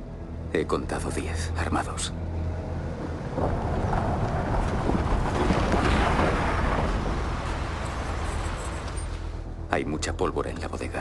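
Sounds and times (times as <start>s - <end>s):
steady low rumble: 0.0s - 9.8s
rushing wind-like noise: 2.2s - 9.6s.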